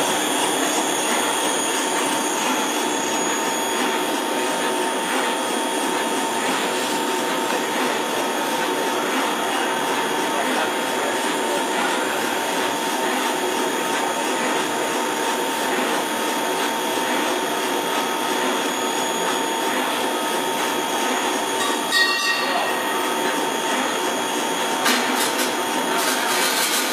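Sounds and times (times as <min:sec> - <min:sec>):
food extruder running: 0:00.0 - 0:26.9
high machine whine: 0:00.0 - 0:26.9.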